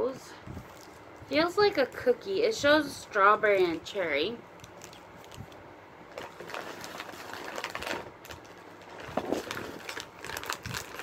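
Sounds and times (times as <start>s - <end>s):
plastic snack bag crinkling: 4.6s - 11.0s.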